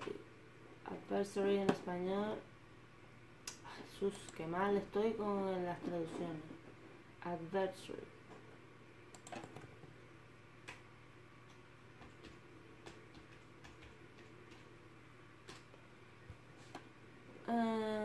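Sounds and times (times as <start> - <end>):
low steady hum: 0.0 - 18.0
keyboard typing clicks: 9.1 - 9.7.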